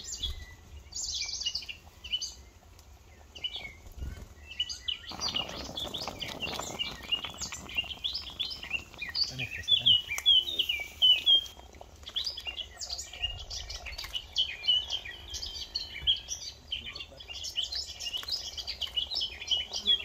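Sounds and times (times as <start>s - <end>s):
songbirds chirping and twittering: 0.0s - 20.0s.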